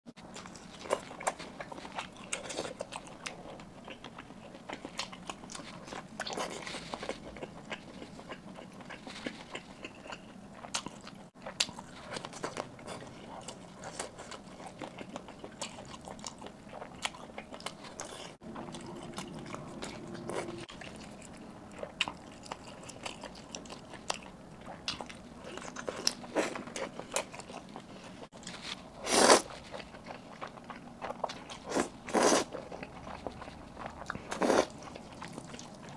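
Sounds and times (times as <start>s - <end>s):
person chewing sausages: 0.2s - 35.9s.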